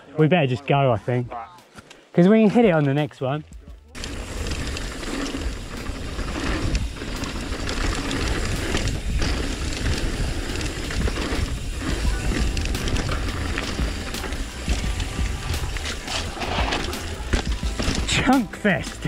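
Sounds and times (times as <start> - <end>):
tyres on dirt trail: 0.0 - 19.0
bike rattling and clicking: 4.0 - 19.0
wind buffeting microphone: 4.2 - 16.1.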